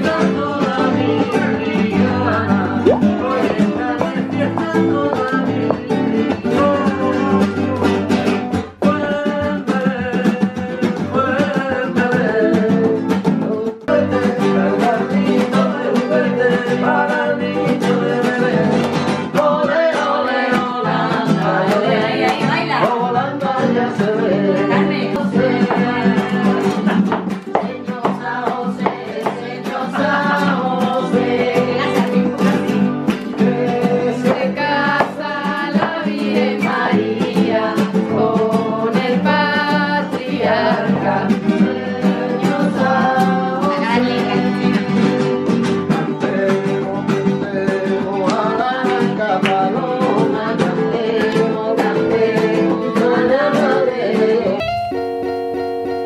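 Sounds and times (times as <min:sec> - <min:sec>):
voices singing: 0:00.0 - 0:08.2, 0:08.8 - 0:56.0
flamenco guitars: 0:00.0 - 0:56.0.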